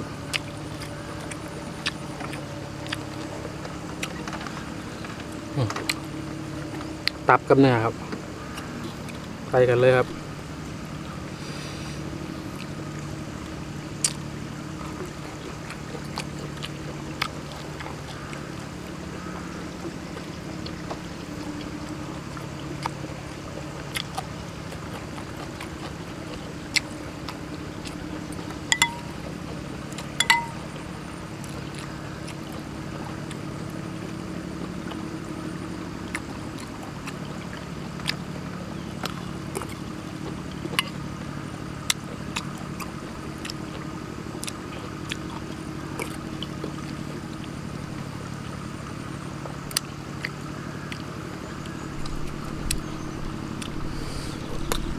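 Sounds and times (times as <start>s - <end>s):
steady low hum: 0.0s - 54.9s
chewing sounds: 0.2s - 7.2s, 11.4s - 19.0s, 20.1s - 23.0s, 23.7s - 41.1s, 41.8s - 48.6s, 49.4s - 54.9s
spoon clinking bowl and glass: 28.7s - 29.2s, 30.2s - 30.6s.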